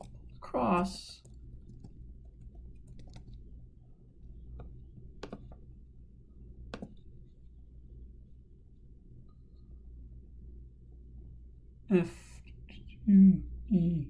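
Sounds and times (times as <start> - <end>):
steady low hum: 0.0 - 14.0
keyboard key taps: 4.6 - 5.6, 6.7 - 7.0.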